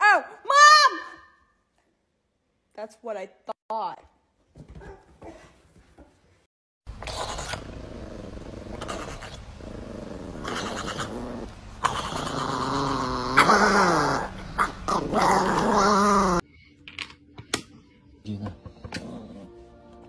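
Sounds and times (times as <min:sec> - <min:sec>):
small dog growling: 0:07.0 - 0:16.4.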